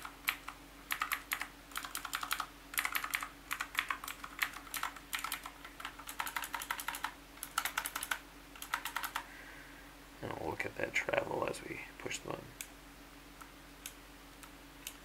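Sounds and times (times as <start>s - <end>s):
mechanical keyboard clicking: 0.0s - 9.2s.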